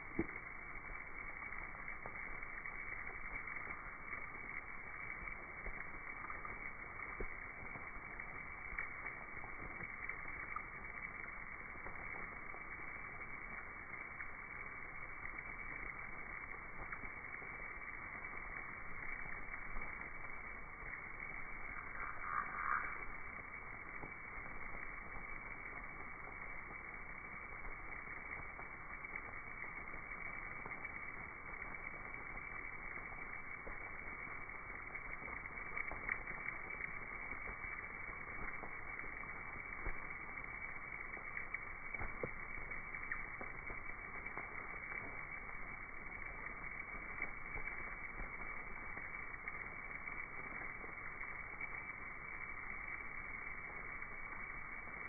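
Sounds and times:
faint ticks and clicks: 0.0 - 55.0
bats chattering and wingbeats: 21.7 - 23.2.

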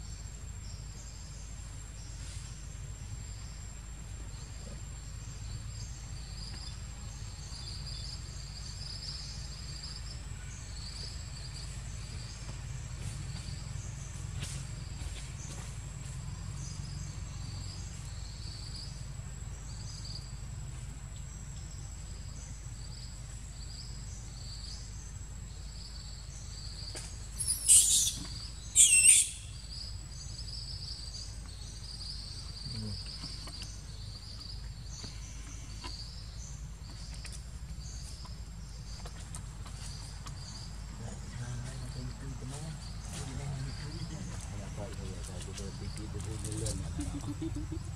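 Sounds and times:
insects chirping: 0.0 - 47.9
baby monkey screaming: 27.4 - 28.2, 28.8 - 29.6.

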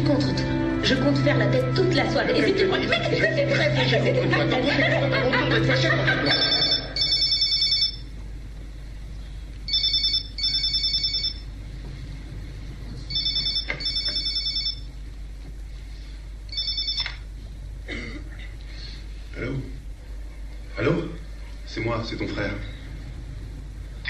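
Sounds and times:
telephone ringing: 6.1 - 8.1, 9.7 - 11.5, 13.1 - 14.9, 16.5 - 17.3.

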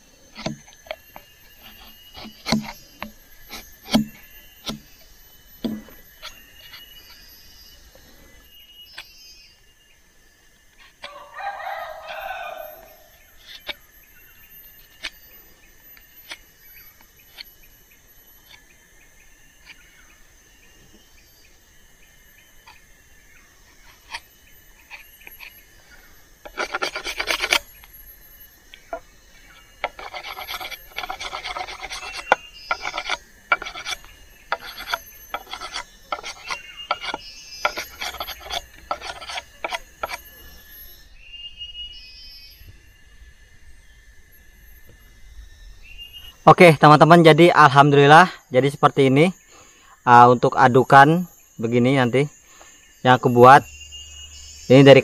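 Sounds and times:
machete scraping wood: 0.1 - 8.3, 10.8 - 13.9, 14.8 - 17.7, 23.7 - 40.9.

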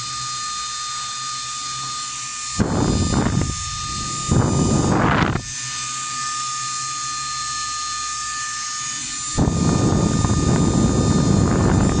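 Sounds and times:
air blower motor whining: 0.0 - 12.0
loud rush of air: 2.6 - 5.5, 9.4 - 12.0.

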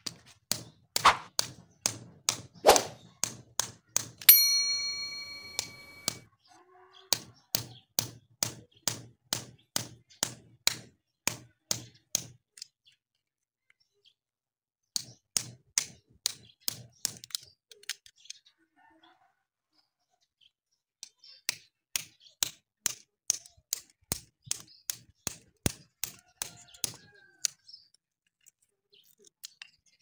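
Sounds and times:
electronic notification ding: 4.3 - 6.1.

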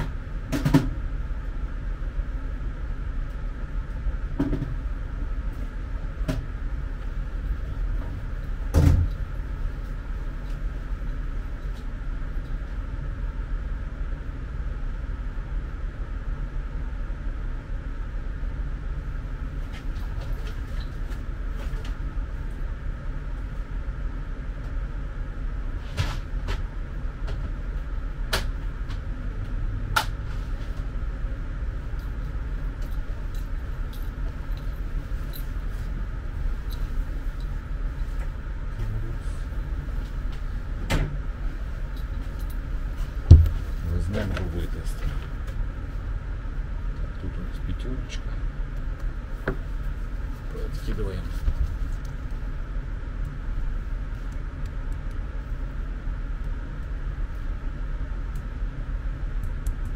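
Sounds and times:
low background hum: 0.0 - 59.9
thump: 8.7 - 9.1, 43.3 - 43.7.

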